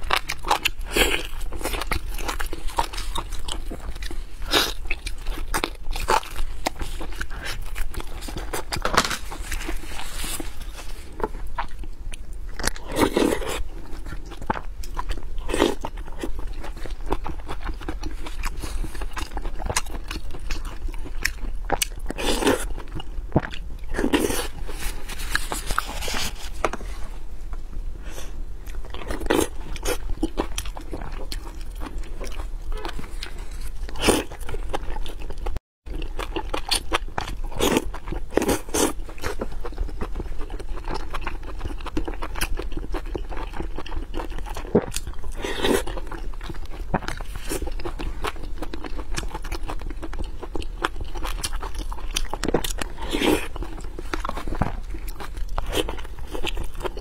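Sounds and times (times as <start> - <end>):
person chewing food: 0.0 - 57.0.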